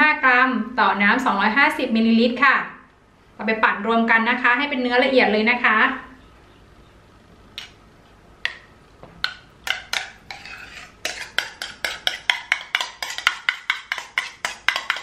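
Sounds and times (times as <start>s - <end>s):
metal spoon scraping ceramic bowl: 9.6s - 15.0s.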